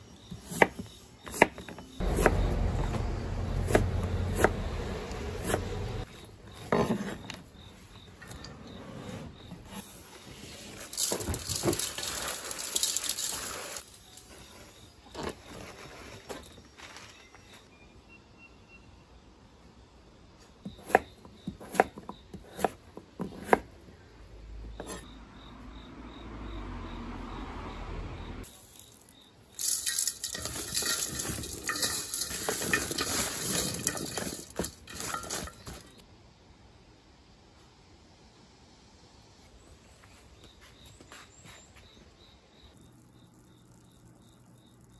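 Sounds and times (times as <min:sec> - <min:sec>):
radish pieces clattering in metal bowl: 0:10.8 - 0:14.3, 0:28.6 - 0:36.0
salt grains pattering on cabbage: 0:10.9 - 0:14.2, 0:28.6 - 0:35.5.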